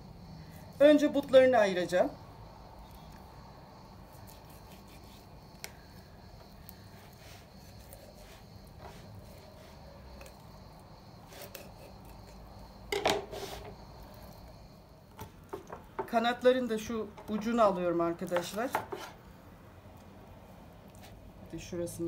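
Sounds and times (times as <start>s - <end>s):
knife slicing chicken: 4.2s - 5.3s.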